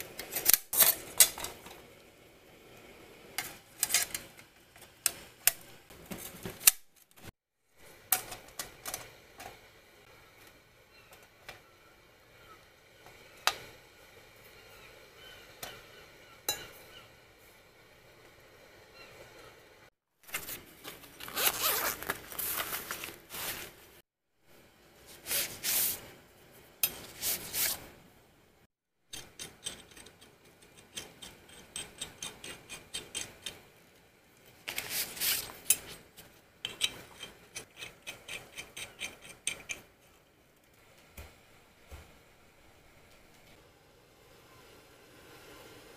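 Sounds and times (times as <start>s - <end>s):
zip rasps: 21.2s - 22.8s.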